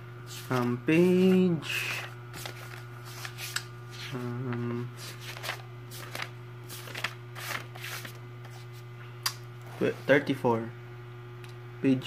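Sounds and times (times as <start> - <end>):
book pages being flipped: 0.3 - 8.8.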